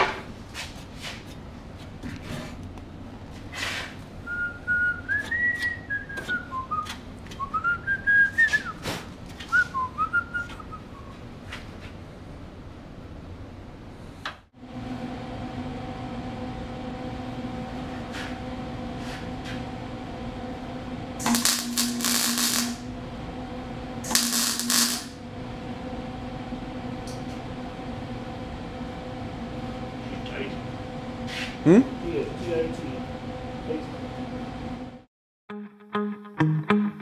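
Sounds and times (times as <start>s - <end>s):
steady mains hum: 0.0s - 35.1s
welder arc noise: 21.2s - 23.1s, 23.9s - 25.4s.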